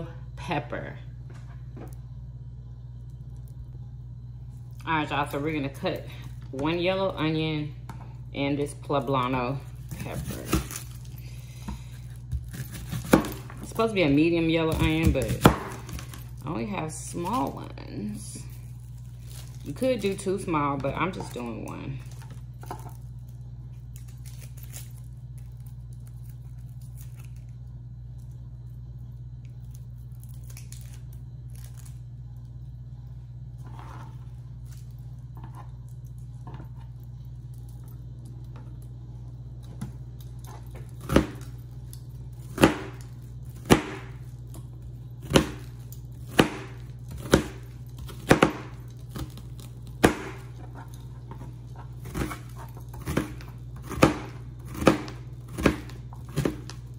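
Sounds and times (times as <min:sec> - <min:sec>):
steady low hum: 0:00.0 - 0:56.9
onion being peeled by hand: 0:08.9 - 0:32.7.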